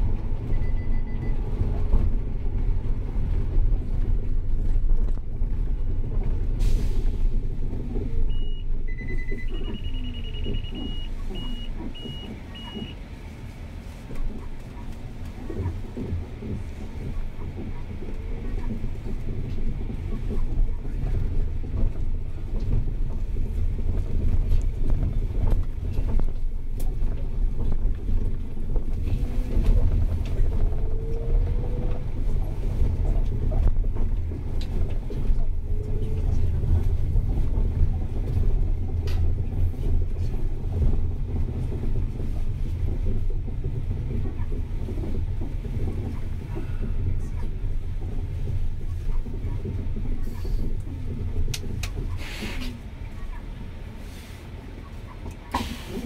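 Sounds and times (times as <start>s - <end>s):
vehicle road noise: 0.0s - 56.0s.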